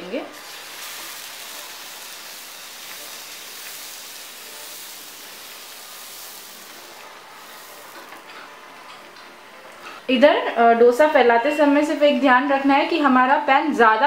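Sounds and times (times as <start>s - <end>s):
batter sizzling on hot pan: 0.3s - 8.4s.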